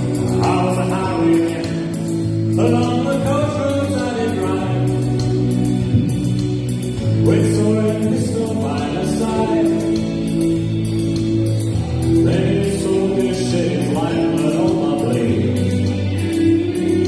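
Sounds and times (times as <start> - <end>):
man singing into a microphone: 0.0 - 5.0, 7.1 - 10.2, 12.2 - 17.0
sustained backing chords: 0.0 - 17.0.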